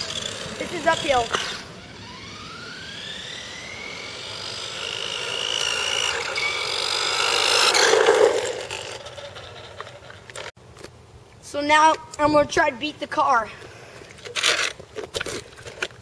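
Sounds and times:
rc car electric motor whining: 0.0 - 10.5.

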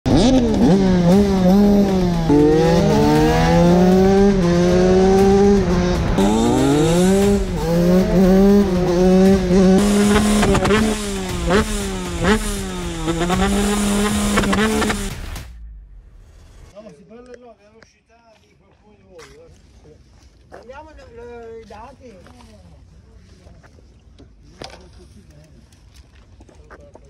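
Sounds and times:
two-stroke engine revving: 0.1 - 15.4
exhaust pops: 9.2 - 16.7.

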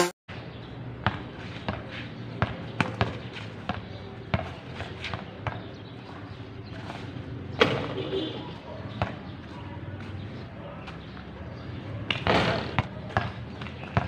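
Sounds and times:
basketball bouncing on court: 1.0 - 5.8, 8.9 - 9.3, 12.1 - 14.0.

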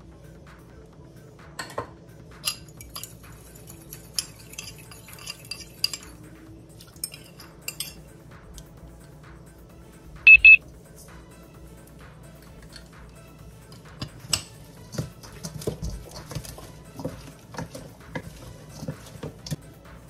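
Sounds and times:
faint background music: 0.0 - 20.0
glass bowl clinking: 1.6 - 6.2, 6.8 - 8.1
fork whisking in ceramic bowl: 2.5 - 8.0, 14.0 - 19.6.

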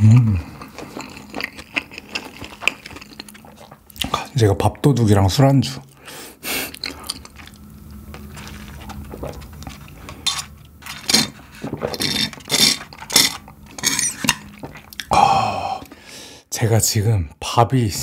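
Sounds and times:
slurping through a straw: 11.0 - 15.1
swallowing: 11.1 - 16.1.

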